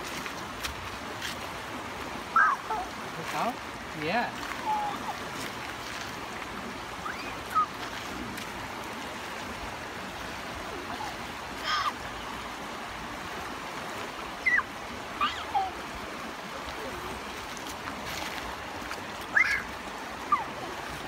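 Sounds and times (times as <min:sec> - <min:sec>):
river rushing over rocks: 0:00.0 - 0:21.0.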